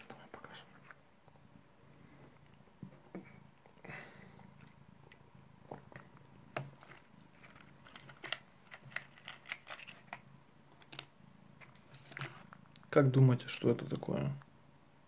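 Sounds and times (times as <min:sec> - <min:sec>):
cat crunching tablets: 0:06.7 - 0:12.8.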